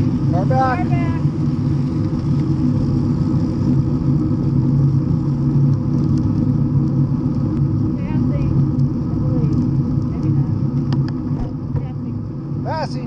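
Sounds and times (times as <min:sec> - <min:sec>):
wind buffeting microphone: 0:00.0 - 0:12.9
tyre road noise rumble: 0:00.0 - 0:13.0.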